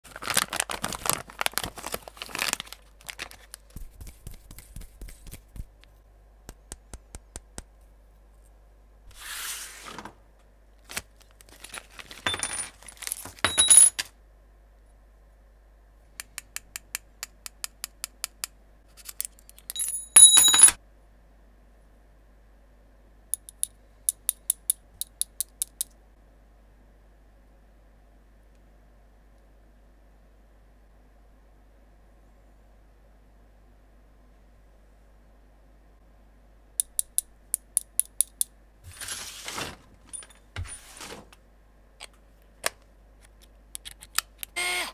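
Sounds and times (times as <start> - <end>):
plastic bags crinkling: 0.0 - 3.8, 10.8 - 13.5.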